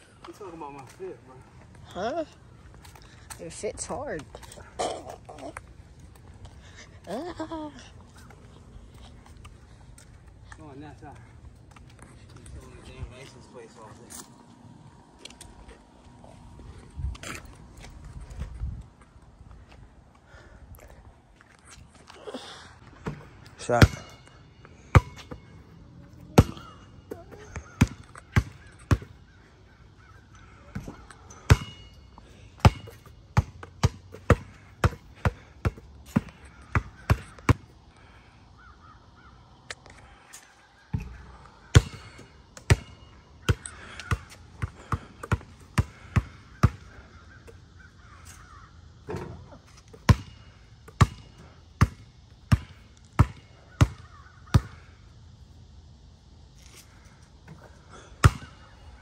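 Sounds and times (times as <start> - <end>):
basketball bouncing on concrete: 23.0 - 25.5, 26.3 - 29.2, 30.7 - 32.0, 32.6 - 37.7, 40.9 - 46.8, 49.9 - 54.8, 58.2 - 58.6.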